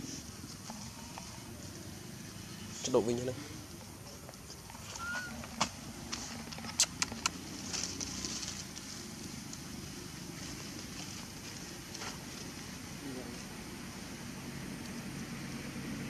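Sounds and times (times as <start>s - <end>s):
rustle of leaves: 0.0s - 16.0s
crackles and snaps of dry leaves: 4.8s - 13.4s.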